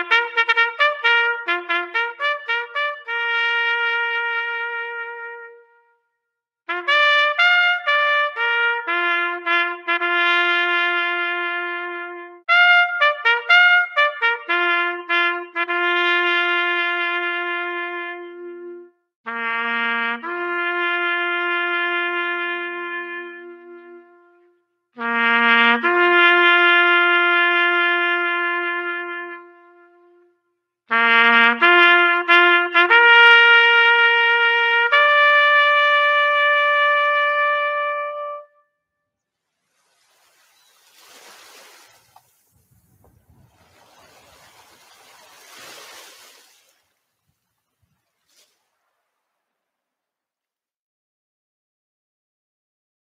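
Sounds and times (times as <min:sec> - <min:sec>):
solo trumpet bugle call: 0:00.0 - 0:06.0, 0:06.7 - 0:38.7.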